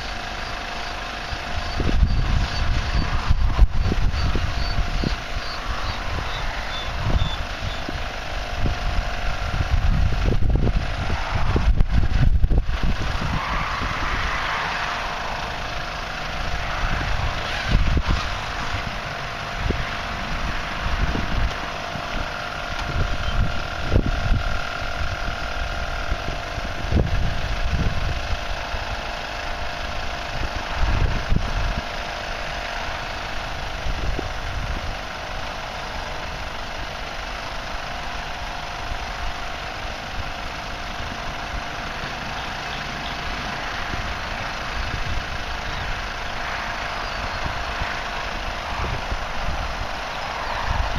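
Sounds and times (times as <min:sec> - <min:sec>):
electric air compressors humming: 0:00.0 - 0:50.9
wind gusts on microphone: 0:01.2 - 0:29.0, 0:29.6 - 0:32.0, 0:43.4 - 0:50.9.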